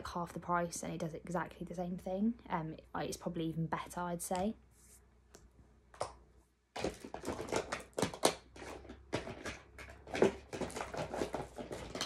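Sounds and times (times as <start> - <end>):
packaging clicks and clatter: 6.8 - 12.0.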